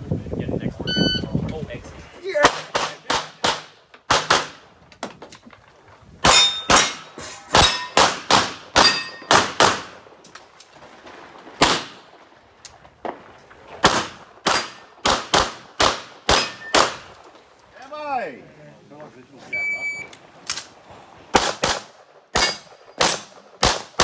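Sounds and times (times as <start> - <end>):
pistol shots: 2.4 - 4.6, 6.2 - 10.0, 11.6 - 12.0, 13.8 - 17.1, 21.3 - 24.0
steel targets ringing: 6.3 - 8.0, 8.8 - 9.3.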